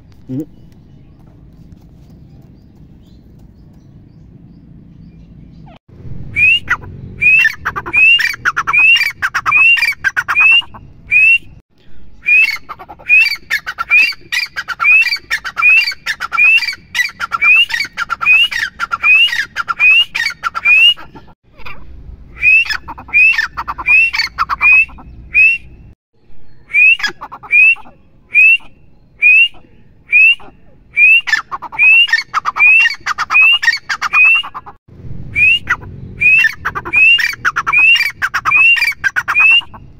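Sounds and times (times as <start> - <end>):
bird calling sharp rising notes: 4.6 - 39.9.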